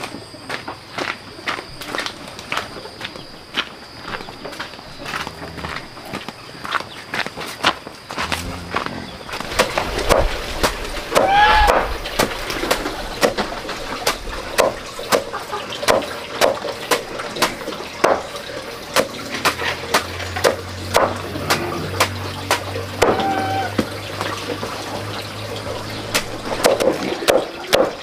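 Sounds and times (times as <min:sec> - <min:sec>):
short pitched call: 0:11.2 - 0:11.9, 0:23.0 - 0:23.8
knife chopping on wooden board: 0:14.1 - 0:15.3.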